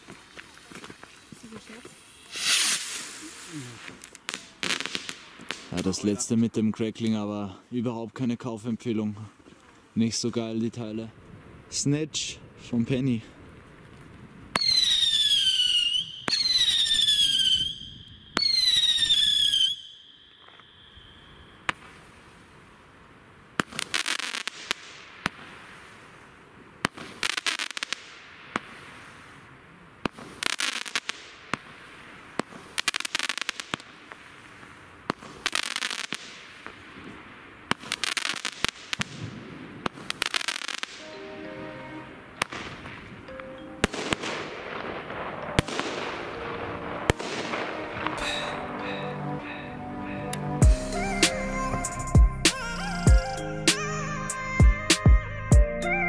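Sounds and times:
firework shots with cracks and pops: 0.0 - 7.2, 13.4 - 41.1, 42.4 - 49.0, 52.5 - 55.2
firework whistles falling in pitch: 2.2 - 3.5, 14.6 - 21.7.

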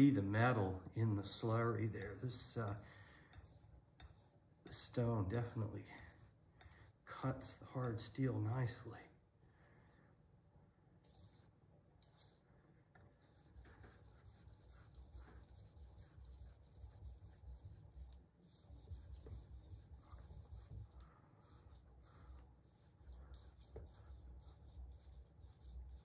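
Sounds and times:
knife scraping on sharpening stone: 2.0 - 4.8, 6.0 - 6.9, 11.0 - 12.4.

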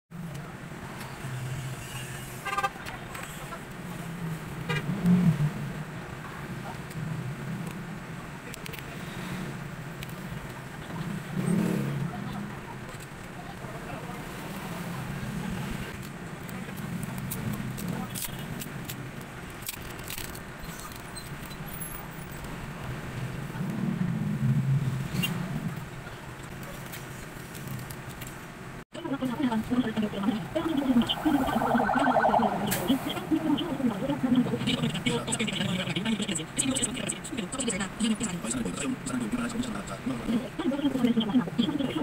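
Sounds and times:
street traffic engines: 0.1 - 42.0
murmur of voices: 29.0 - 42.0.

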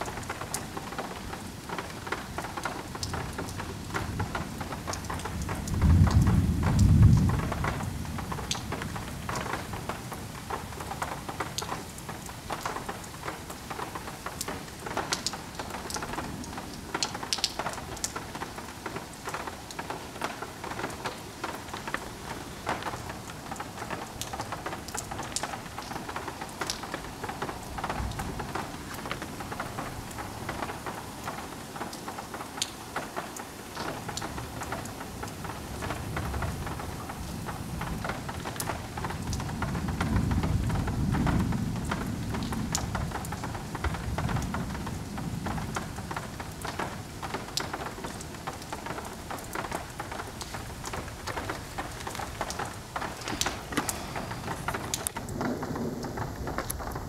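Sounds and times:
heavy rain: 0.0 - 57.0
thunder rumble: 4.2 - 9.9, 48.8 - 57.0
drips and splashes: 48.2 - 55.4.

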